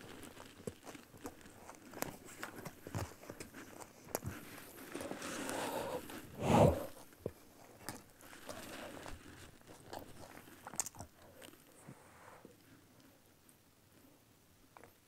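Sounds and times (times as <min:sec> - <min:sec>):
crunching bites and chewing: 0:00.0 - 0:11.7.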